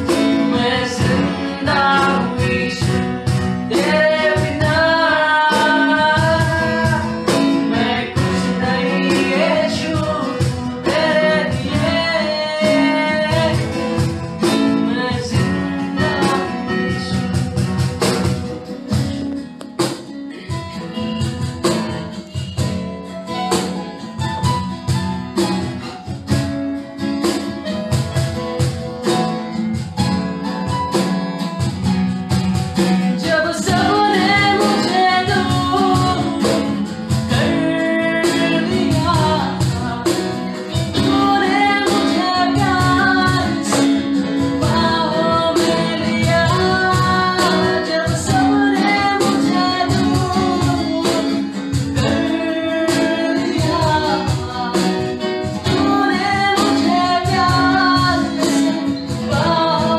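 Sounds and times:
man singing: 0.0s - 17.6s, 33.2s - 59.9s
cajon beat: 0.0s - 59.9s
strummed acoustic guitar: 0.0s - 59.9s.

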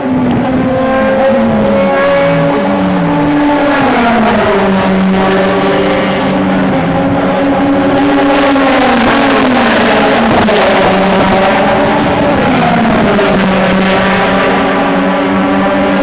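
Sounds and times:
race car engines accelerating: 0.0s - 16.0s.

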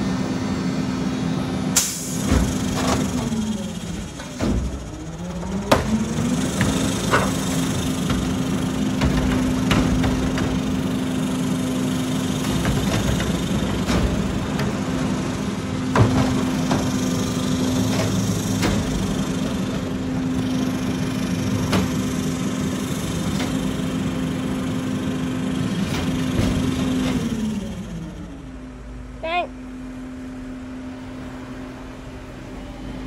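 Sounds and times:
garbage truck engine humming: 0.0s - 33.0s
metallic clanks and knocks: 4.0s - 10.8s.

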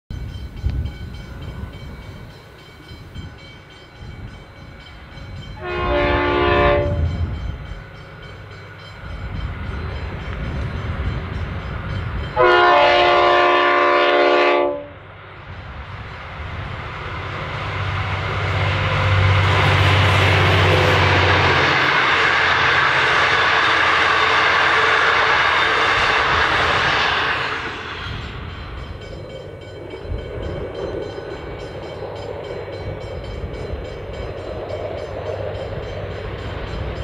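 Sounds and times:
diesel locomotive engine drone: 0.1s - 37.0s
locomotive horn blasts: 5.6s - 7.3s, 12.4s - 15.1s.

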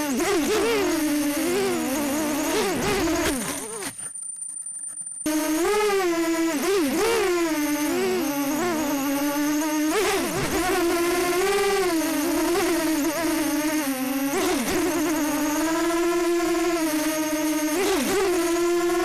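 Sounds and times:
quadcopter propellers whining: 0.0s - 19.0s.

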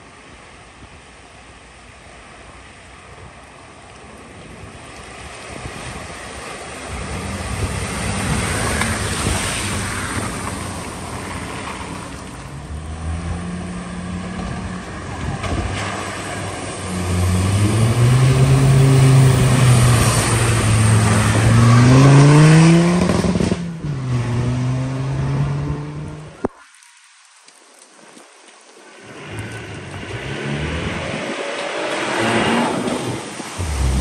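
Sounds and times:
water washing: 4.0s - 22.2s
car engine revving: 12.6s - 26.3s, 29.0s - 34.0s.

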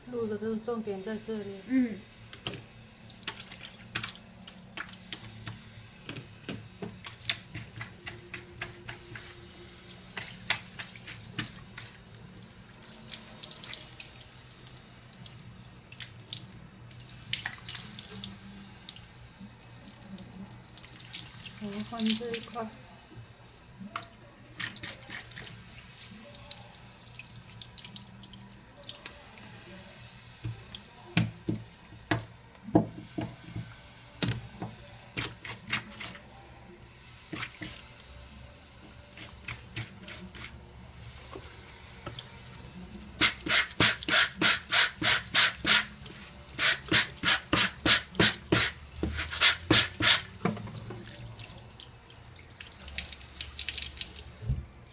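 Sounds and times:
tap water running onto drain: 43.1s - 54.8s.

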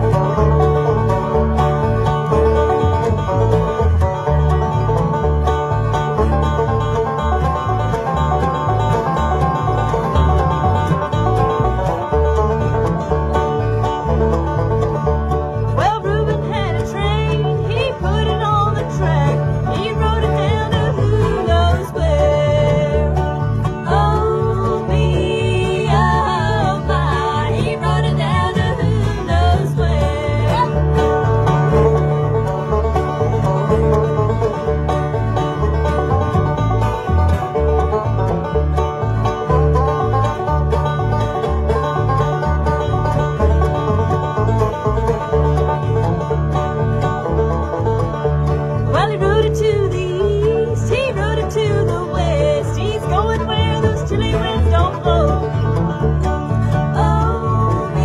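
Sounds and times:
acoustic guitar: 0.0s - 58.0s
banjo lead: 0.0s - 58.0s
bass beat: 0.0s - 58.0s
mandolin: 0.0s - 58.0s.

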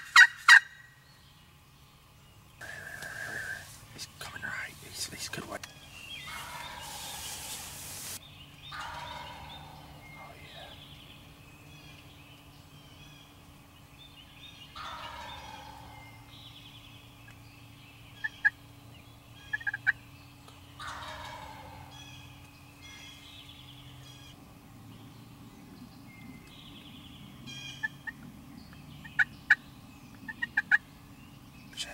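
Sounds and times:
turkey gobbling: 0.0s - 0.9s, 2.6s - 3.7s, 6.2s - 7.9s, 8.7s - 10.7s, 14.8s - 16.1s, 19.4s - 20.0s, 20.8s - 22.2s, 27.6s - 28.2s, 30.3s - 30.8s.

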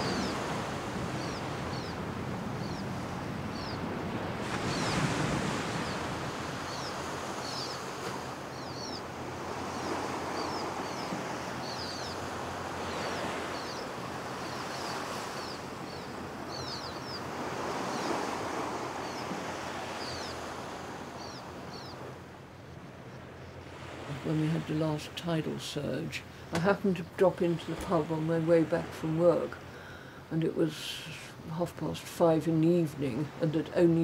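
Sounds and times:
sea waves breaking on beach: 0.0s - 22.6s, 23.4s - 26.9s
small birds chirping: 0.0s - 24.9s.

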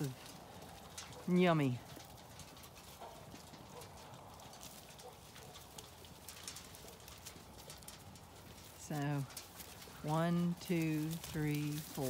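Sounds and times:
sheep feeding taps and shuffles: 0.0s - 12.0s.

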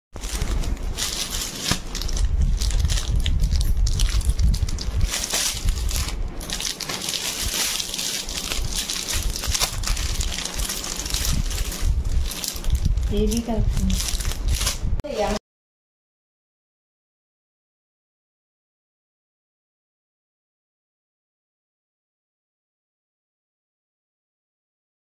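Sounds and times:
low rumble: 0.2s - 15.4s
plastic bags crinkling: 0.2s - 15.4s.

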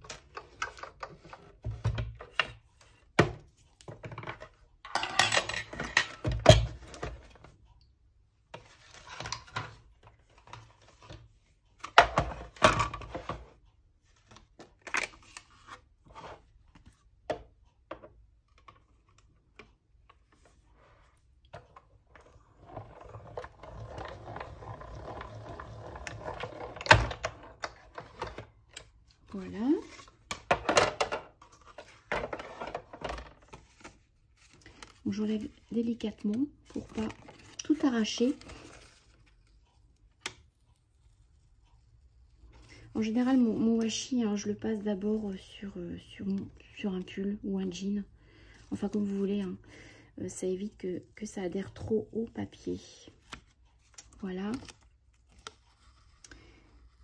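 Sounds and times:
crank machine rolling: 22.6s - 27.0s
plastic plates knocking and clicking: 30.3s - 31.4s.

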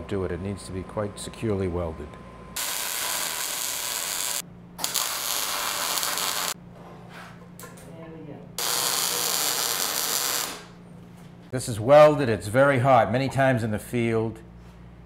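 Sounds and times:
welding arc crackling: 2.6s - 6.6s, 8.6s - 10.8s.

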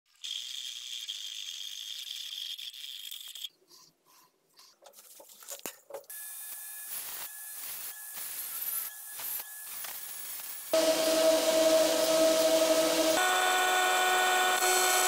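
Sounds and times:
high-pitched whistling hiss: 6.5s - 15.0s
angle grinder whine: 7.6s - 15.0s.

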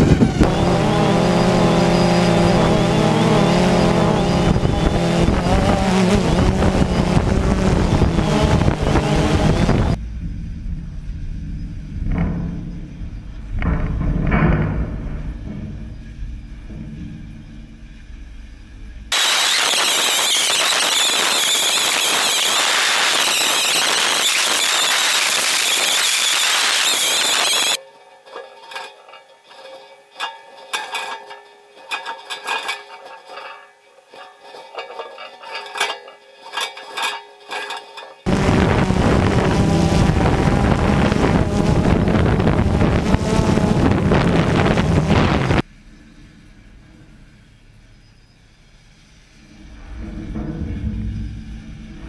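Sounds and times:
wind rumble on microphone: 0.0s - 19.2s, 38.3s - 45.7s
drone propellers crackling hiss: 17.8s - 27.8s, 38.2s - 45.7s.

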